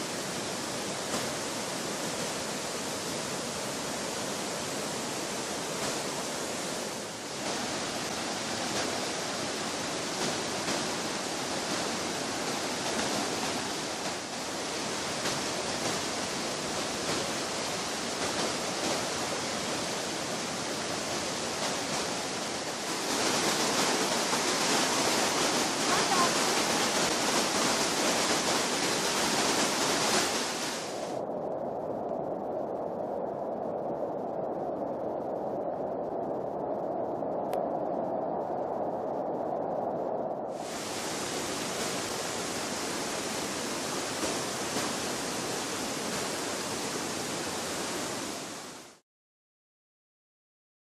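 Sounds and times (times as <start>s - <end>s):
river rapids rushing: 0.0s - 31.1s, 40.6s - 49.0s
waterfall roar: 0.0s - 31.2s, 40.6s - 49.0s.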